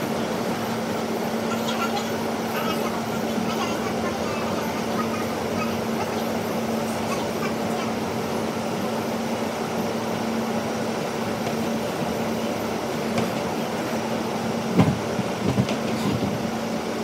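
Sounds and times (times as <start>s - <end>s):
subway car rumbling in tunnel: 0.0s - 17.0s.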